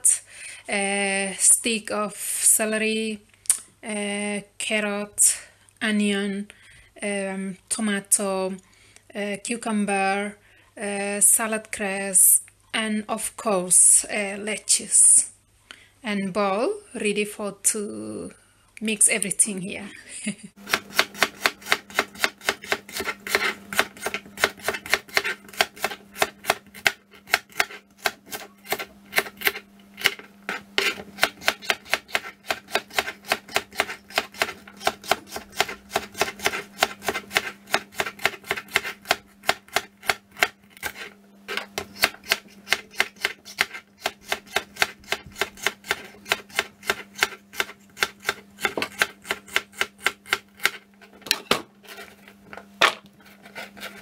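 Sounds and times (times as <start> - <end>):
knife chopping on plastic board: 20.7 - 51.6.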